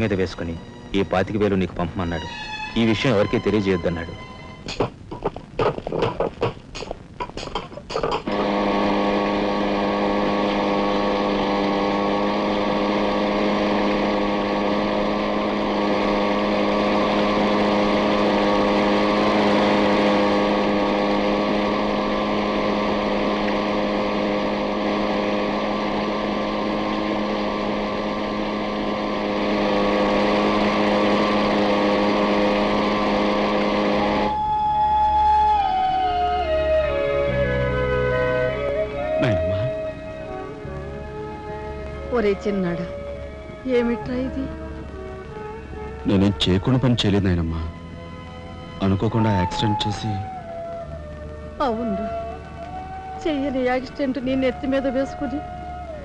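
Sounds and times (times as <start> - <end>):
steady low drone: 0.0 - 6.2, 8.0 - 56.0
sharp knocks: 4.7 - 8.3.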